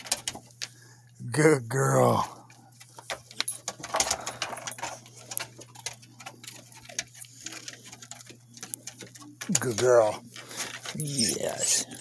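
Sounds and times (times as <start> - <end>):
dog crunching a treat: 2.4 - 12.0
dog claws clicking on wood: 2.8 - 11.2.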